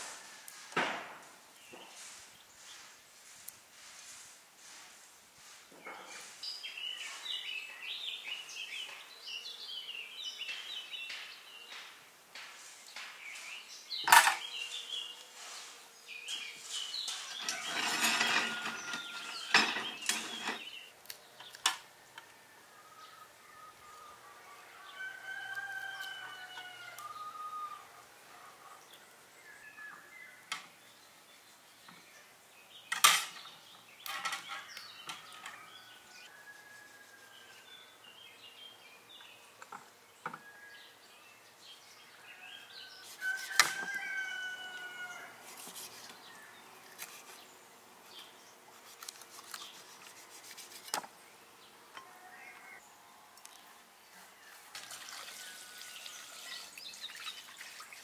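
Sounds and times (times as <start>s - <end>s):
songbirds chirping: 0.0s - 58.0s
rooster crowing: 17.2s - 19.5s, 22.0s - 28.8s, 42.2s - 45.4s.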